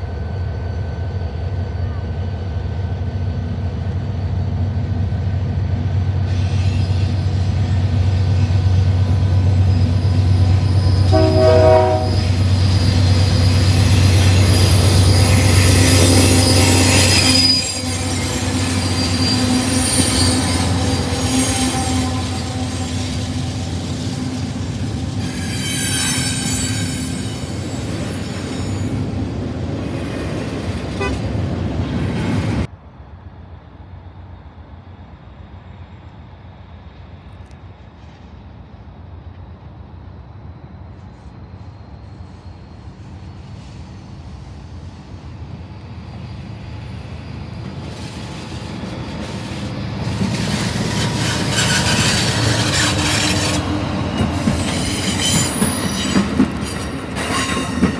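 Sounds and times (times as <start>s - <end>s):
freight train passing: 0.0s - 57.9s
locomotive engine drone: 0.0s - 57.9s
wheel squeal: 6.1s - 11.5s, 12.2s - 29.0s, 46.3s - 57.9s
train horn blast: 11.0s - 12.4s, 31.0s - 31.3s.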